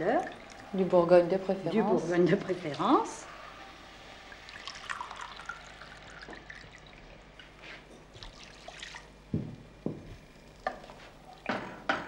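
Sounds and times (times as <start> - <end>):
wine pouring from a bottle: 4.5 - 7.3.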